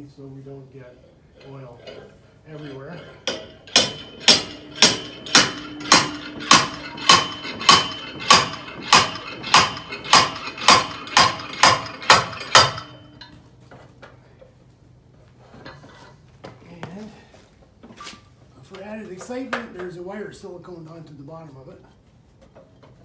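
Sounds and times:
slide hammer ringing metal blows: 1.6 - 13.4.

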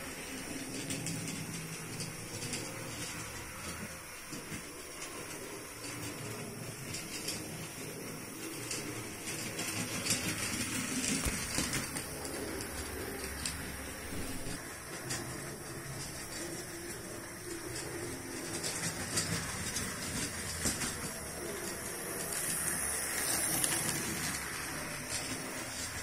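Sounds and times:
model train motor hum: 0.0 - 26.0
wheels clicking over rail joints: 0.0 - 26.0.

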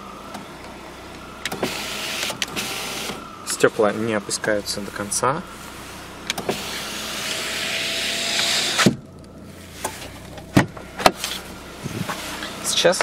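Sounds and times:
window motor whirring: 0.2 - 4.3, 5.6 - 9.2
window glass clunk: 9.8 - 11.2.

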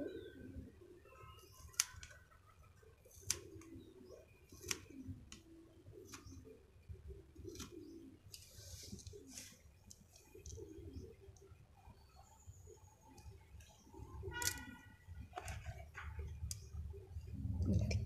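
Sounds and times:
pigeons cooing: 0.0 - 1.3, 2.4 - 18.0
scissors snipping: 1.6 - 2.1, 3.1 - 3.7, 4.6 - 4.9.

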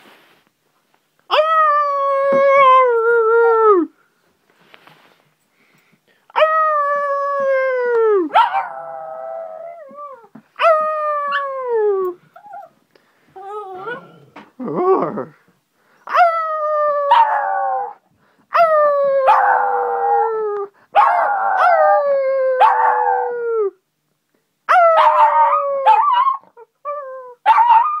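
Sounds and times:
puppy howling: 8.1 - 12.7, 13.4 - 14.3, 16.1 - 23.7, 24.7 - 28.0.

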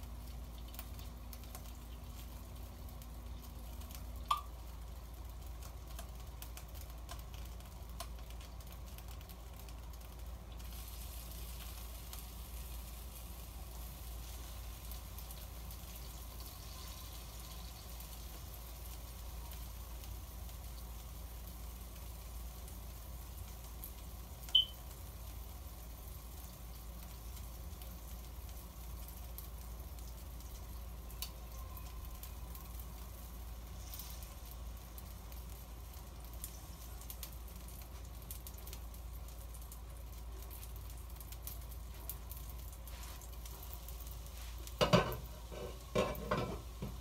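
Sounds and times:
cake sizzling on grill: 0.0 - 47.0
low electrical hum: 0.0 - 47.0
glass lid clattering: 44.8 - 47.0.

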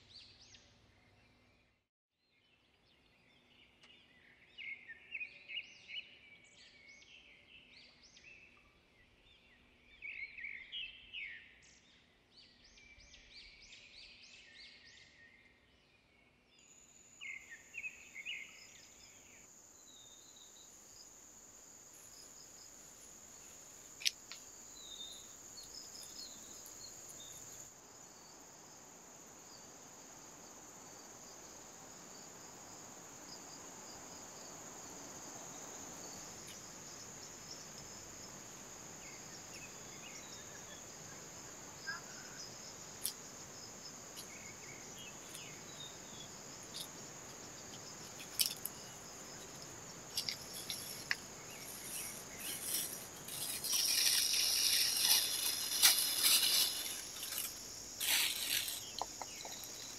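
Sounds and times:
insects droning: 16.6 - 59.9.

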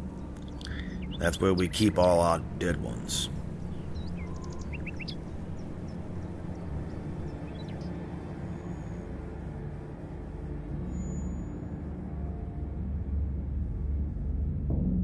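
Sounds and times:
faint bird chirps: 0.0 - 1.9, 2.8 - 9.3, 10.8 - 11.8
low outdoor rumble: 0.0 - 15.0.

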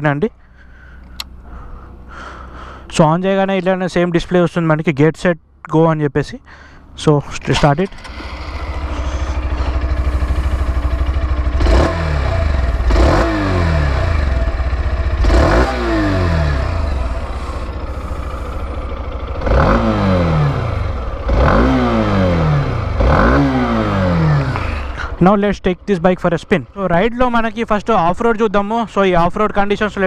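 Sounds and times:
engine revving: 7.7 - 25.2
motorcycle engine idling: 7.8 - 30.0.

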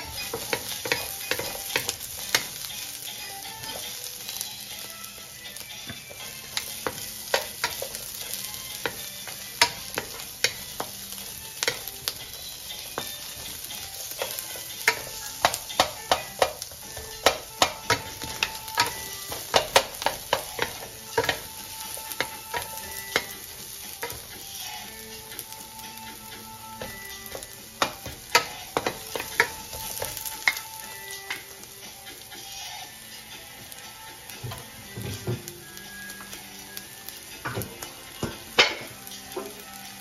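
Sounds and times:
wooden spatulas clacking on pan: 0.0 - 2.6, 5.9 - 12.2, 12.9 - 25.5, 26.1 - 31.5
onion sizzling in a wok: 0.0 - 40.0.

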